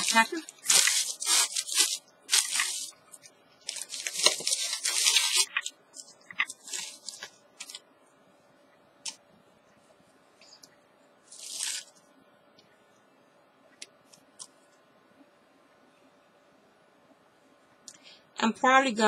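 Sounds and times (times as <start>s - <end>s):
plastic bag crinkling: 0.0s - 7.8s, 11.3s - 12.0s.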